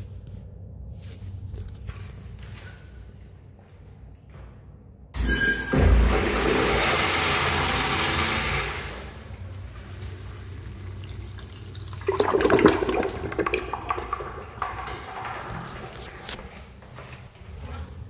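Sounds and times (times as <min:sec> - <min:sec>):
water draining: 0:05.2 - 0:16.4
urinal flushing: 0:05.2 - 0:16.6.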